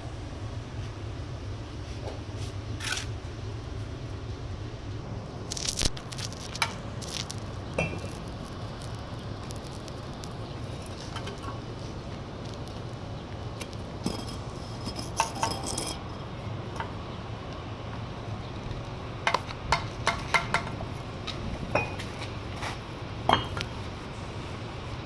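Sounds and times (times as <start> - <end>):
steady low hum: 0.0 - 25.0
trowel clinking on bricks: 14.0 - 16.2, 23.3 - 23.6.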